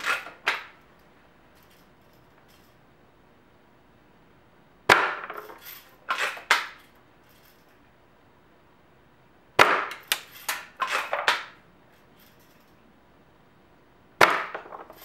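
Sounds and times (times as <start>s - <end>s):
air rifle shot crack: 4.9s - 5.3s, 9.6s - 10.0s.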